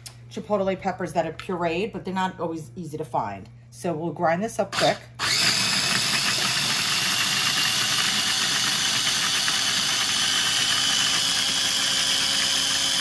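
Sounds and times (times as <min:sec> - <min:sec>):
food processor motor whining: 0:04.7 - 0:13.0.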